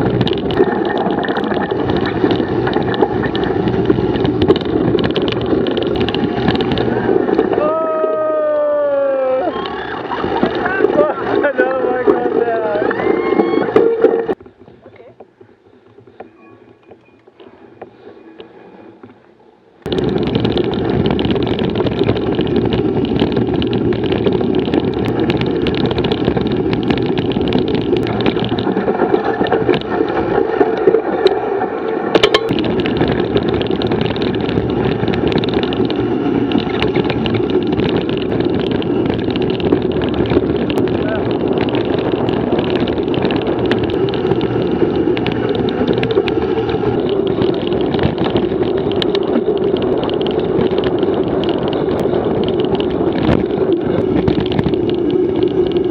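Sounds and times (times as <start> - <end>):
wind buffeting microphone: 0.0 - 8.6, 19.8 - 55.9
bike rattling over ground: 0.0 - 55.9.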